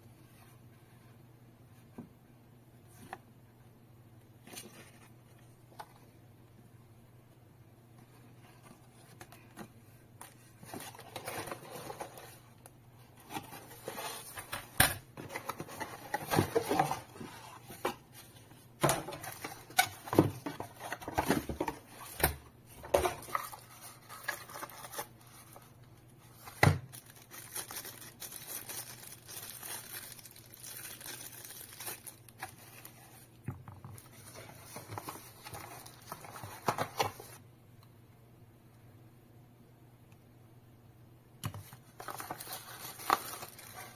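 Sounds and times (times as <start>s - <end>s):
plastic and paper rustling: 8.4s - 37.4s, 41.5s - 43.9s.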